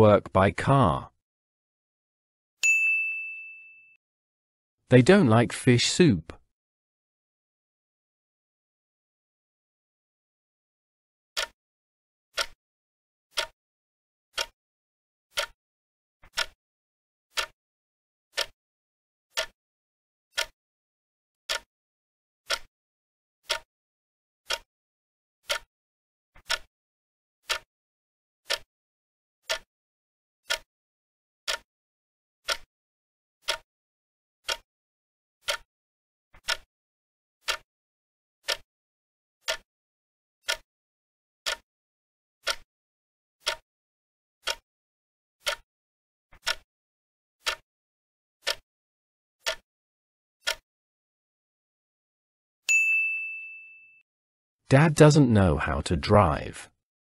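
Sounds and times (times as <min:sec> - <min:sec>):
clock ticking: 0:11.4 - 0:11.6, 0:12.4 - 0:12.6, 0:13.3 - 0:13.6, 0:14.4 - 0:14.6, 0:15.3 - 0:15.6, 0:16.3 - 0:16.6, 0:17.3 - 0:17.6, 0:18.4 - 0:18.6, 0:19.4 - 0:19.6, 0:20.3 - 0:20.6, 0:21.5 - 0:21.7, 0:22.5 - 0:22.7, 0:23.4 - 0:23.7, 0:24.5 - 0:24.7, 0:25.4 - 0:25.7, 0:26.4 - 0:26.7, 0:27.5 - 0:27.7, 0:28.5 - 0:28.7, 0:29.5 - 0:29.7, 0:30.4 - 0:30.7, 0:32.5 - 0:32.7, 0:33.4 - 0:33.6, 0:35.4 - 0:35.7, 0:36.4 - 0:36.7, 0:37.4 - 0:37.6, 0:39.4 - 0:39.6, 0:40.4 - 0:40.6, 0:42.4 - 0:42.6, 0:43.4 - 0:43.6, 0:44.4 - 0:44.6, 0:45.4 - 0:45.6, 0:46.4 - 0:46.6, 0:47.4 - 0:47.6, 0:48.4 - 0:48.6, 0:49.4 - 0:49.6, 0:54.7 - 0:56.7.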